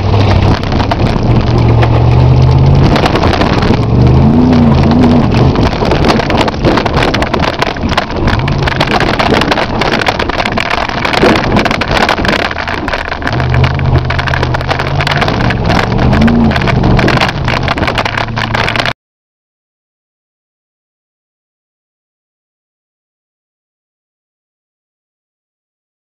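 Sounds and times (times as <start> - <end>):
body and suspension clatter: 0.0 - 19.0
car engine running hard: 0.0 - 19.0.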